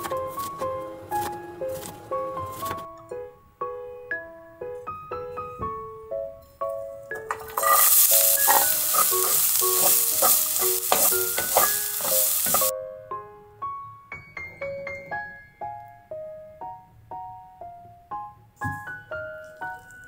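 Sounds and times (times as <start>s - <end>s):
light keyboard background music: 0.0s - 20.0s
onions sizzling in hot oil: 7.3s - 12.7s.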